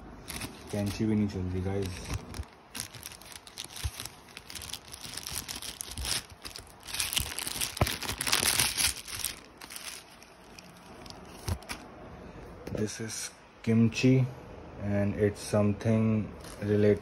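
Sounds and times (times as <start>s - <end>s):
plastic bag crinkling: 0.0s - 11.9s.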